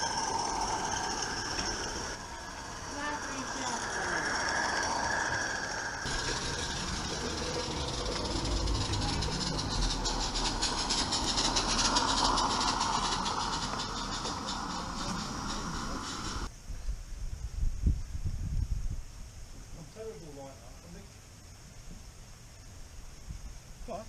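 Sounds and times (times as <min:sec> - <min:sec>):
model steam train running past: 0:00.0 - 0:16.5.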